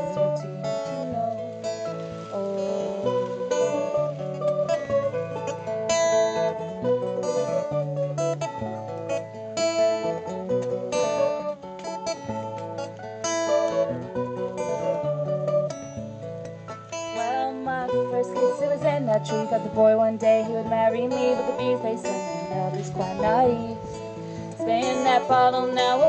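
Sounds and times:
acoustic guitar strumming: 0.0 - 26.0
electric mandolin melody: 0.0 - 26.0.

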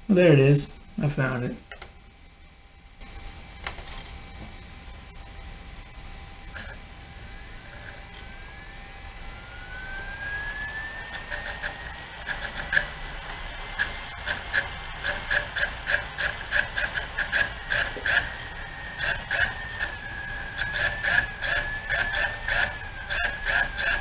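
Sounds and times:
cd drive whining: 1.4 - 2.4, 3.0 - 24.0
cd drive clicking: 1.7 - 2.0.

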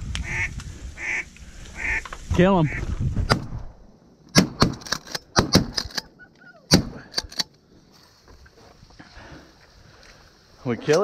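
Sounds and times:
shotgun fire: 4.3 - 5.8, 6.7 - 7.1.

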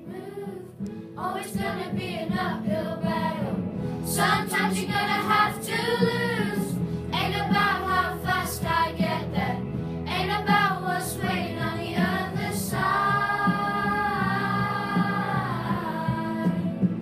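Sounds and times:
children singing: 4.1 - 16.8.

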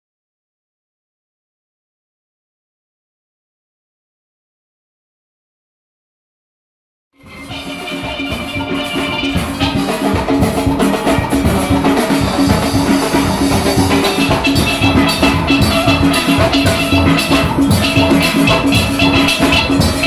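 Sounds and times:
steady drum beat: 7.2 - 20.0
steelpans playing chords and melody: 7.2 - 20.0.

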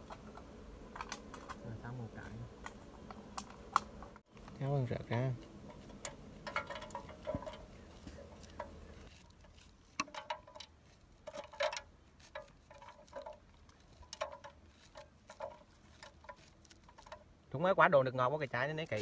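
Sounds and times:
knife scraping kernels off corn cob: 6.9 - 17.3.

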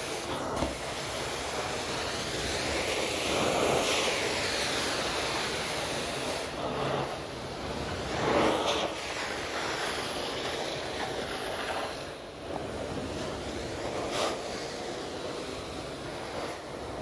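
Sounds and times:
carpet cleaner vacuum rush: 0.0 - 17.0.

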